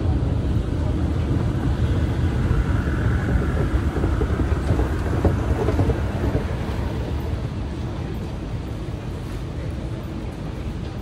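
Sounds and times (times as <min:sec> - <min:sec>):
low rumble of underground station: 0:00.0 - 0:11.0.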